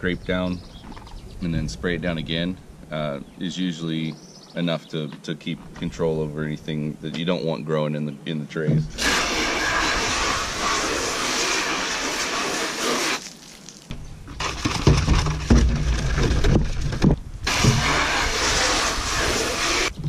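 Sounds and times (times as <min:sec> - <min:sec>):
hose spraying water: 0:08.9 - 0:14.7, 0:17.4 - 0:20.0
brush scrubbing plastic tray: 0:09.2 - 0:13.4, 0:17.5 - 0:20.0.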